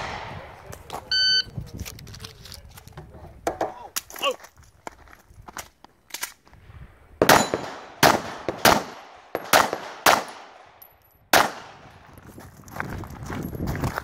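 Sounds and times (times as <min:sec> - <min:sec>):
handgun shots: 0:07.2 - 0:10.6, 0:11.3 - 0:11.9.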